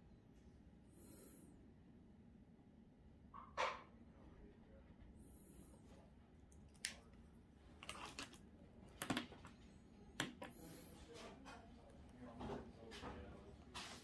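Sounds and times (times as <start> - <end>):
pens clicking and tapping: 7.9 - 10.6.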